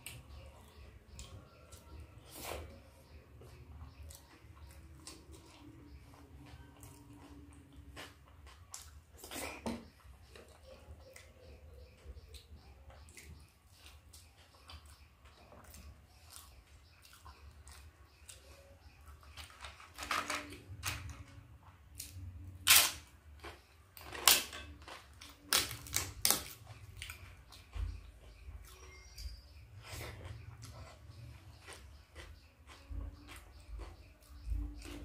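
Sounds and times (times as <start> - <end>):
crisp wafer crunching: 22.0 - 27.2.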